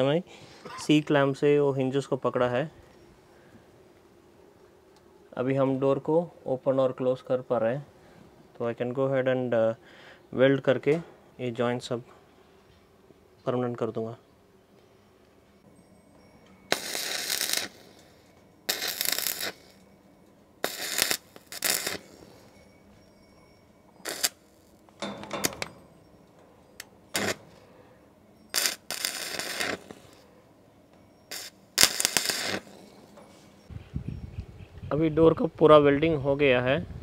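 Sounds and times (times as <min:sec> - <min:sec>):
electric arc welding: 0:16.7 - 0:19.8, 0:20.6 - 0:22.6, 0:24.0 - 0:25.6, 0:27.1 - 0:27.6, 0:28.5 - 0:30.2, 0:31.3 - 0:33.2.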